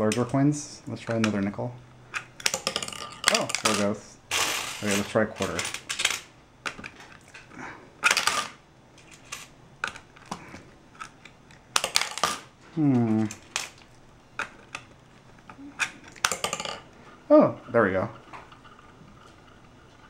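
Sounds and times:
coins clinking: 0:02.2 - 0:06.3, 0:08.0 - 0:10.0, 0:11.7 - 0:12.5, 0:16.2 - 0:16.9
man humming: 0:12.7 - 0:13.4.

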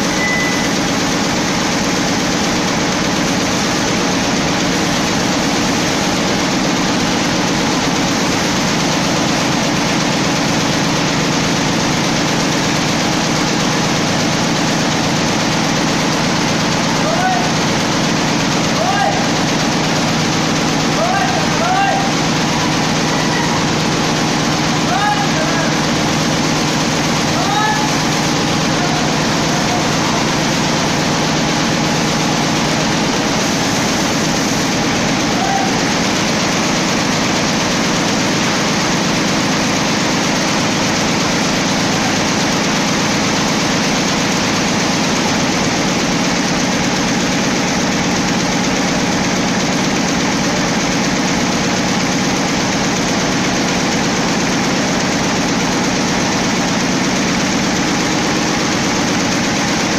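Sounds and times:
embroidery machine clattering: 0:00.0 - 0:59.9.

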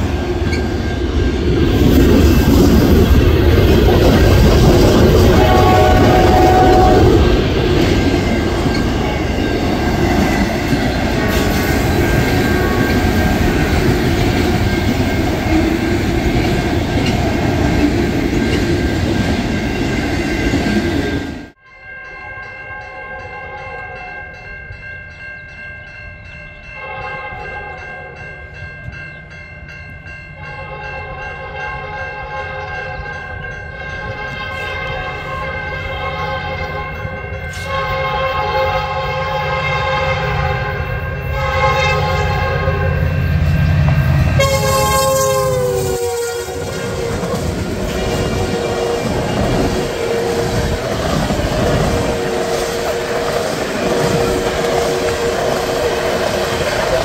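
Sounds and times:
freight cars rumbling on rails: 0:00.0 - 0:21.6, 0:28.2 - 0:57.0
distant locomotive horn: 0:05.1 - 0:07.4, 0:26.8 - 0:28.2, 0:30.4 - 0:57.0.

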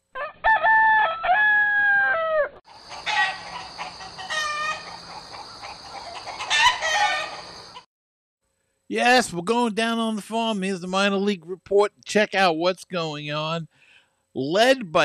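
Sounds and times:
rooster crowing: 0:00.1 - 0:07.8
chickens clucking: 0:02.7 - 0:07.8
steady high hiss: 0:08.9 - 0:13.7.

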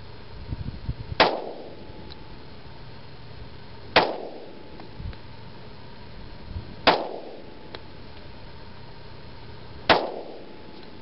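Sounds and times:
pistol shot: 0:01.2 - 0:01.8, 0:04.0 - 0:04.6, 0:06.8 - 0:07.6, 0:09.9 - 0:10.7.

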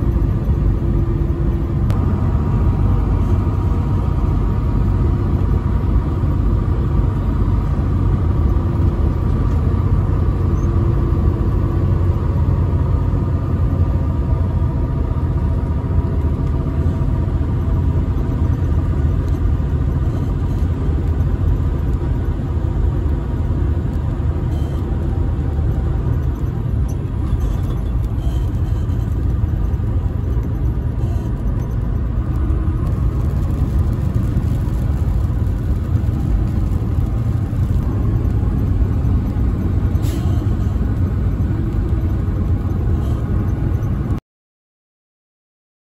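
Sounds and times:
truck engine low rumble: 0:00.0 - 0:44.2.

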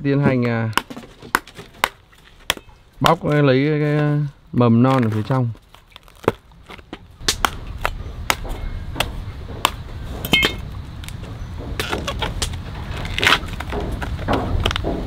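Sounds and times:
palm leaf bases snapping: 0:00.7 - 0:04.1, 0:04.9 - 0:15.0
palm fibres tearing: 0:04.9 - 0:09.1, 0:11.8 - 0:14.8.

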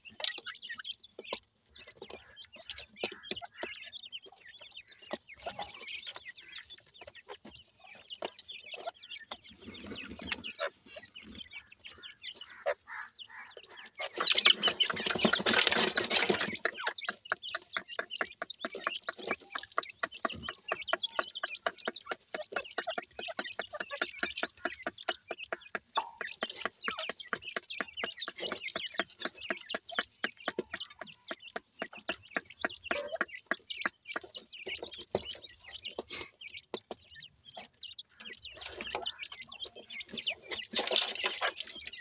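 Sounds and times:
birds clucking and chirping: 0:00.0 - 0:42.0.

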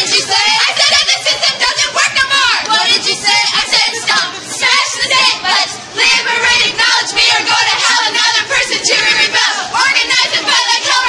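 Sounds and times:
young women singing a cheer: 0:00.0 - 0:11.0.

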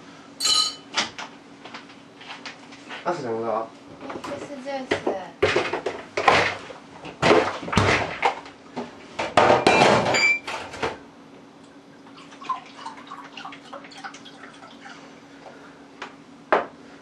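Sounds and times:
glassware clinking: 0:00.4 - 0:00.9
liquid pouring: 0:12.1 - 0:15.2.

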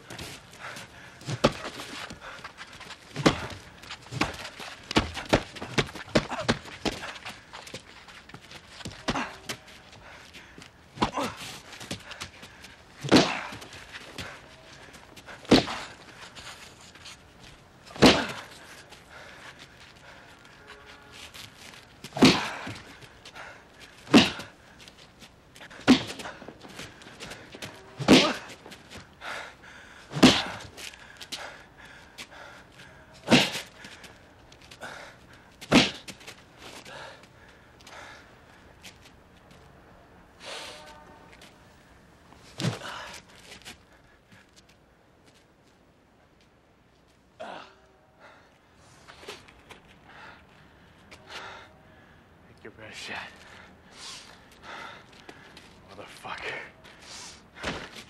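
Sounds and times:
punches landing: 0:01.2 - 0:09.6, 0:11.0 - 0:12.4, 0:13.0 - 0:14.4, 0:15.3 - 0:16.1, 0:17.9 - 0:18.6, 0:22.0 - 0:23.1, 0:24.0 - 0:24.6, 0:25.6 - 0:29.0, 0:30.1 - 0:30.8, 0:33.2 - 0:34.0, 0:35.6 - 0:36.3, 0:42.6 - 0:43.2, 0:57.6 - 0:58.0
heavy punch impacts: 0:03.1 - 0:07.0, 0:13.0 - 0:13.6, 0:15.5 - 0:15.9, 0:18.0 - 0:18.5, 0:22.1 - 0:22.8, 0:24.1 - 0:24.5, 0:25.8 - 0:26.6, 0:28.0 - 0:28.6, 0:30.1 - 0:30.7, 0:33.3 - 0:33.7, 0:35.7 - 0:36.1.

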